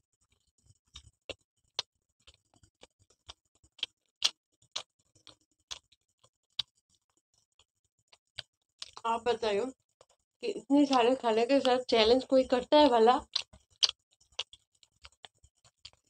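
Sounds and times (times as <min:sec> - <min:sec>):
people chewing pizza crunching: 0:00.2 - 0:09.0, 0:13.2 - 0:16.0
wet mouth smacks: 0:03.3 - 0:04.9, 0:13.3 - 0:15.3.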